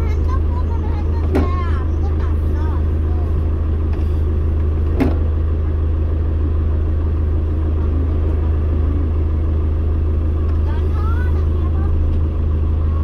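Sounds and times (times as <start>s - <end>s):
bus engine and road rumble: 0.0s - 13.0s.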